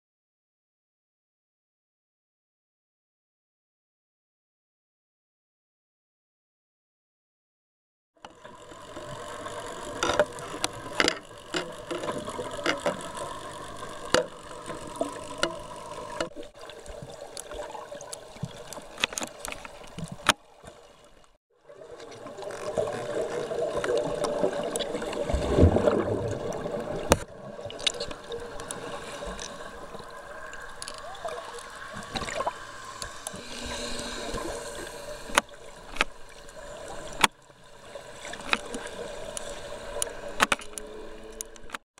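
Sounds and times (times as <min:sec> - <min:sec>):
water swishing and gurgling underwater: 0:08.2 - 0:41.8
rush of water: 0:21.7 - 0:40.5
steady low hum: 0:31.0 - 0:41.5.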